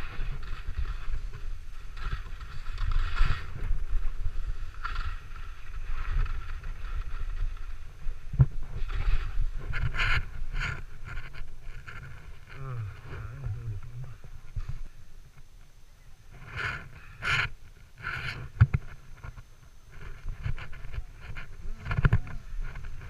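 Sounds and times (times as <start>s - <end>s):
wind buffeting microphone: 0.0s - 15.5s.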